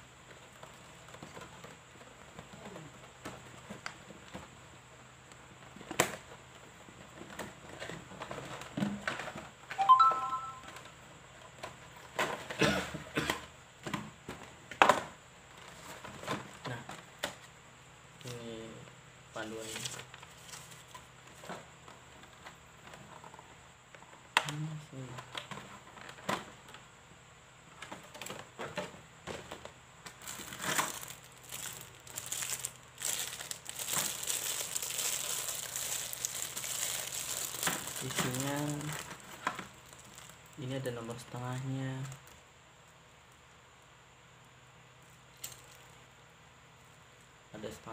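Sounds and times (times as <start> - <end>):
brief squeaky tone: 9.8 - 10.8
paper rustling: 19.6 - 21.6, 30.2 - 40.4
plastic packaging crinkling: 29.5 - 42.4.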